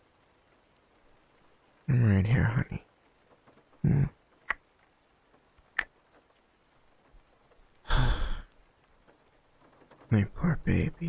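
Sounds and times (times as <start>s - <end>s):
sharp little clicks: 3.1s - 6.4s.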